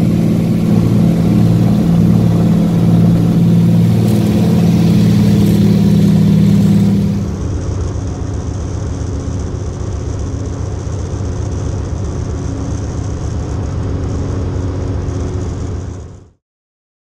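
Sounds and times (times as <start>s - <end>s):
propeller plane engine cabin noise: 0.0s - 16.2s.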